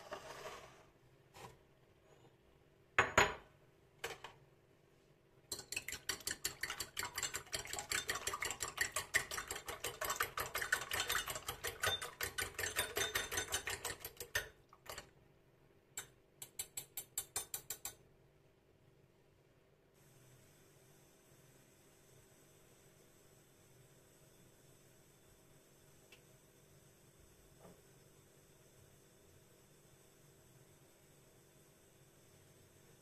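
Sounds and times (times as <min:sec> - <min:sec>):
fork beating eggs in bowl: 0:05.5 - 0:15.1, 0:16.0 - 0:18.0.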